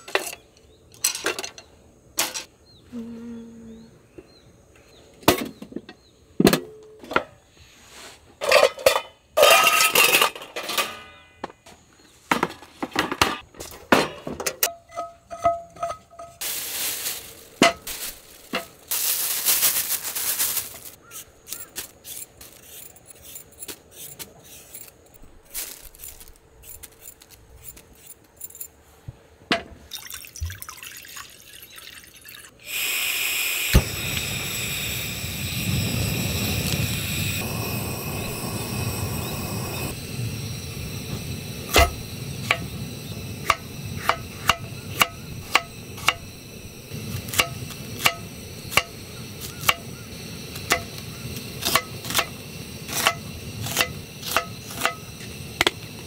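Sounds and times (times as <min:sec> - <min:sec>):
dishes clinking and knocking: 0:12.3 - 0:16.4
rustling: 0:16.4 - 0:28.9.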